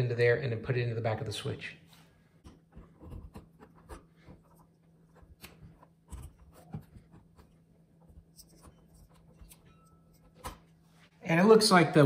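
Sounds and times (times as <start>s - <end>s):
wires rustling and scratching: 2.0s - 11.1s.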